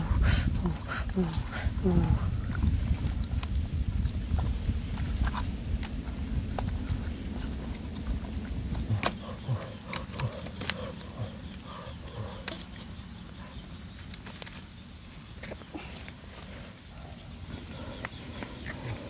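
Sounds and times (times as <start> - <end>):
wind rumble on microphone: 0.0 - 12.5
twig kindling snapping in fire: 13.9 - 16.1.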